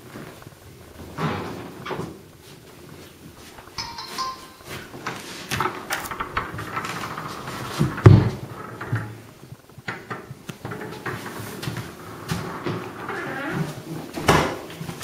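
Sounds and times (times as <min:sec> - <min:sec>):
clicks and knocks: 0:03.7 - 0:09.2.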